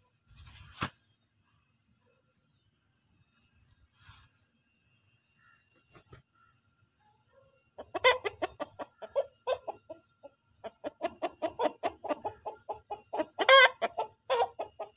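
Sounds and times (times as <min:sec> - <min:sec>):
rooster clucking: 0:07.8 - 0:14.9.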